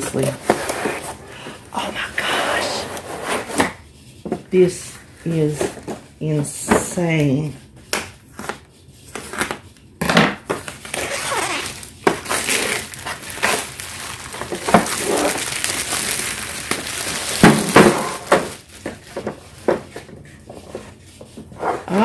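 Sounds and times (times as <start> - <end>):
scissors cutting plastic: 10.6 - 19.3
plastic wrap crinkling: 10.6 - 20.5.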